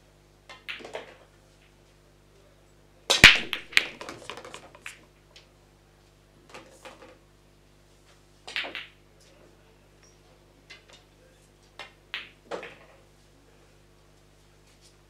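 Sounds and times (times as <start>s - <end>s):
pool balls clicking: 0.5s - 1.4s, 3.1s - 5.0s, 8.4s - 9.0s, 11.7s - 13.1s.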